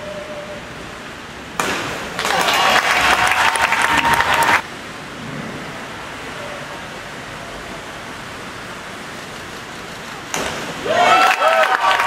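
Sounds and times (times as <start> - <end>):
indoor pool hall hiss: 0.0 - 12.0
spectators applauding: 2.2 - 4.6, 10.9 - 12.0.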